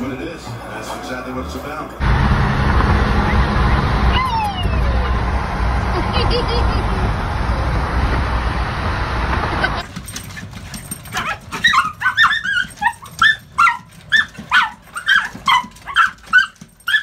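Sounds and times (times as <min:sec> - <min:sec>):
road rumble inside a car: 0:02.0 - 0:09.8
dog yipping: 0:10.1 - 0:17.0.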